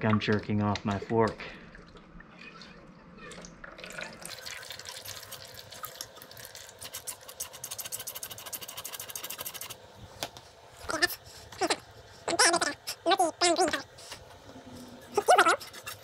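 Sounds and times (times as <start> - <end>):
fork oil squirting and gurgling: 4.3 - 9.8.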